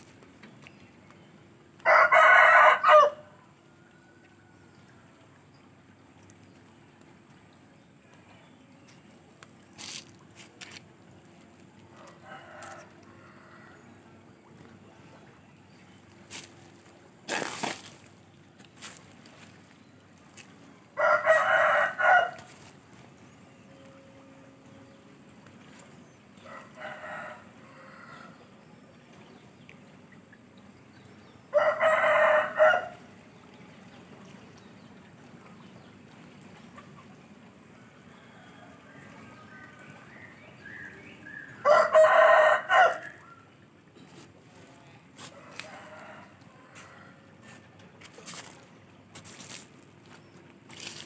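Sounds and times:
flowing river water: 0.0 - 23.7, 24.5 - 51.0
distant rooster crowing: 1.8 - 5.0, 11.9 - 14.3, 21.0 - 22.5, 26.4 - 28.5, 31.5 - 33.1, 41.2 - 43.5, 45.2 - 47.6
short crackling noises: 16.3 - 19.6.

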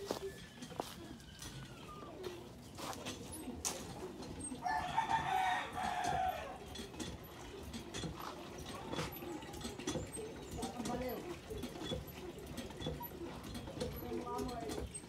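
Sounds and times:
rooster crowing: 4.6 - 6.6.

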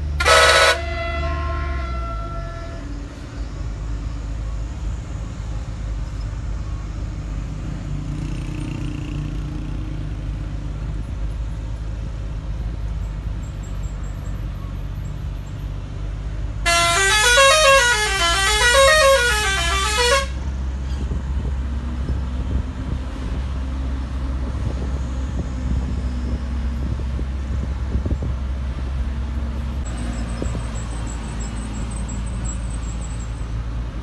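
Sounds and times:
musical bus horn: 0.0 - 3.5, 16.6 - 21.2
bus engine running: 0.0 - 34.0.

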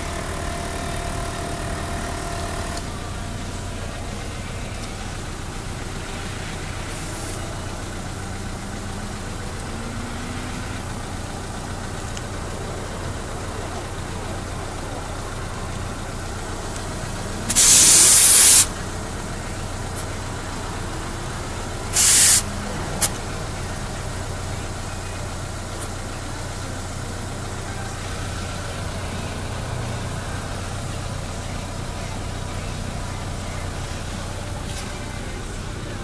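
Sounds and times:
steady motor hum: 0.0 - 36.0
compressed air hissing from tire valve: 6.5 - 7.6, 17.4 - 18.8, 21.9 - 23.2.

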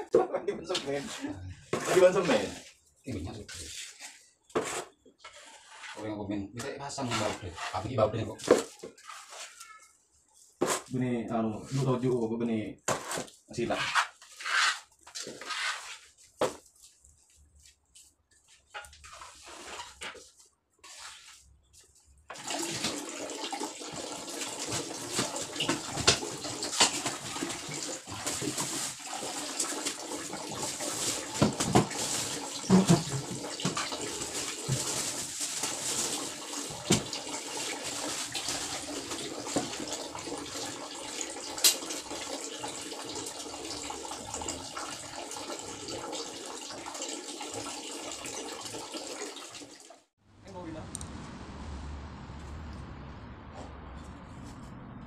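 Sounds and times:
hands working wet cement in bucket: 0.7 - 6.2, 6.9 - 9.7, 10.5 - 12.2, 12.8 - 16.8, 18.0 - 21.5, 23.9 - 40.7
running water: 22.3 - 50.1.

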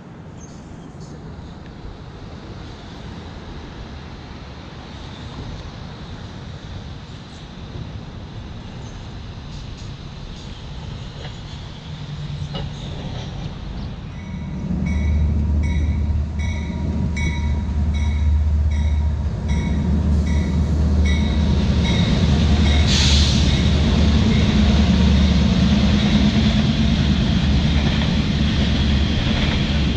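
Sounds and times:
rail cars rolling by: 0.0 - 29.9
locomotive engines rumbling: 6.3 - 29.9
locomotive bell ringing: 14.2 - 22.9
air hiss: 22.3 - 25.0.

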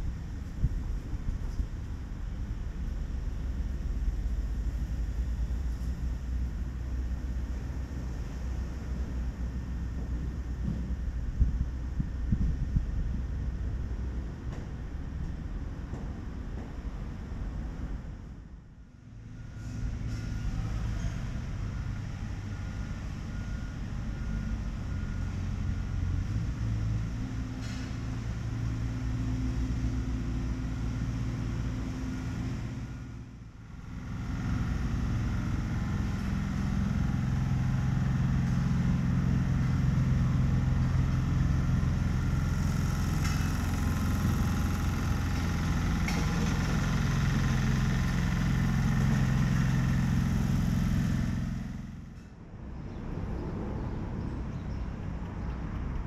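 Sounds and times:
traffic engines rumbling: 0.0 - 56.0.

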